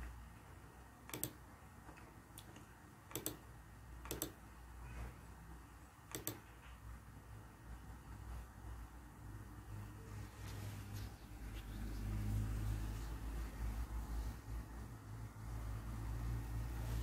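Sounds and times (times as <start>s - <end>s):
faint steady hum: 0.0s - 17.0s
computer mouse clicking: 1.1s - 3.4s, 4.0s - 4.4s, 6.1s - 6.5s.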